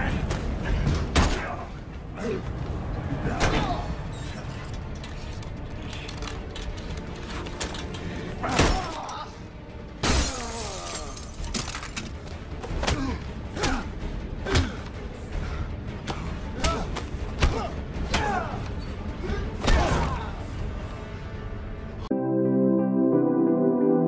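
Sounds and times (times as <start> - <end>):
glass breaking: 10.0 - 12.0.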